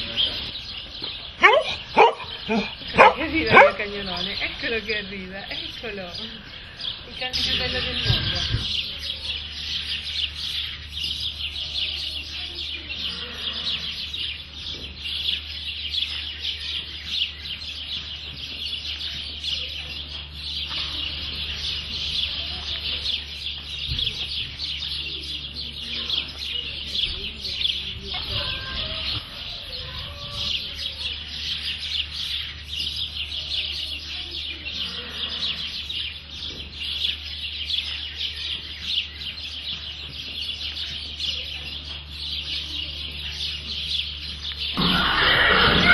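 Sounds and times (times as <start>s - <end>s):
chickens clucking: 16.0s - 33.1s.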